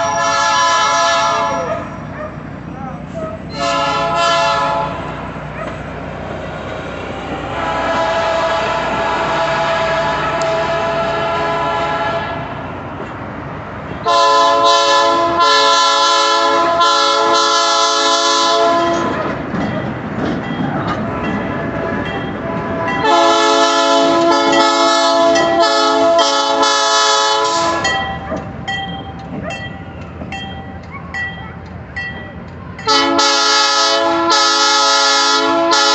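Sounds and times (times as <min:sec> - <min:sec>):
locomotive air horn blasts: 0:00.0 - 0:01.9, 0:03.2 - 0:05.2, 0:07.5 - 0:12.6, 0:14.0 - 0:19.2, 0:21.8 - 0:28.0, 0:32.8 - 0:35.9
passing train rumble: 0:00.0 - 0:35.9.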